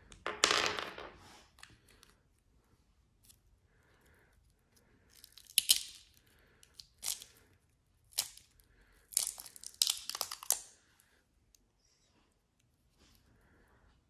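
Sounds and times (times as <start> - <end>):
resin crackling crunches: 9.1 - 10.6.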